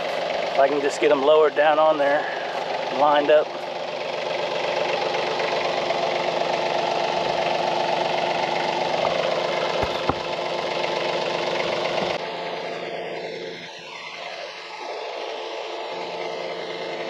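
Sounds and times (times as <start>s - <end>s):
tractor diesel engine running: 0.0s - 17.0s
sharp metal knocks: 9.8s - 10.4s.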